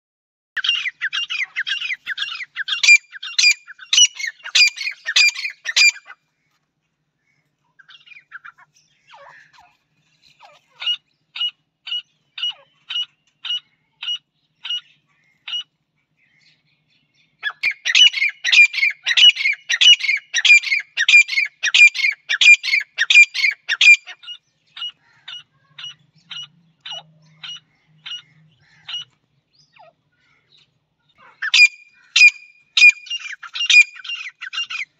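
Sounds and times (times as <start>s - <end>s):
francolin calling shrill notes: 31.4s - 34.8s.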